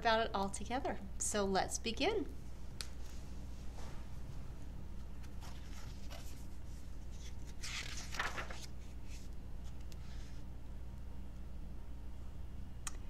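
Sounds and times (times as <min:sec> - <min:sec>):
low steady hum: 0:00.0 - 0:13.0
paper pages rustling: 0:05.0 - 0:10.4.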